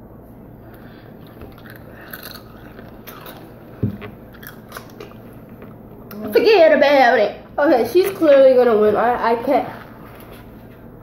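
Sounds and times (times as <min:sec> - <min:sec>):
chips being crunched and chewed: 0:01.2 - 0:03.6, 0:04.2 - 0:05.2.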